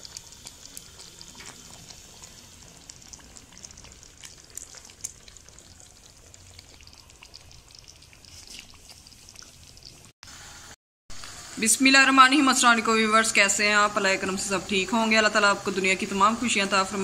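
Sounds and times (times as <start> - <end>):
gravy simmering with bubbling pops: 0.0 - 10.2.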